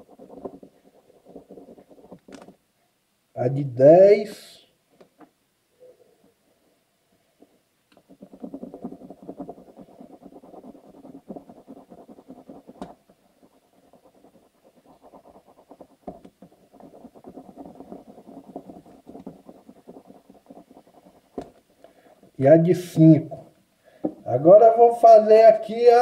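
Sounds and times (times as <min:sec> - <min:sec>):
pencil scratching on paper: 0:00.0 - 0:02.6, 0:08.0 - 0:23.5.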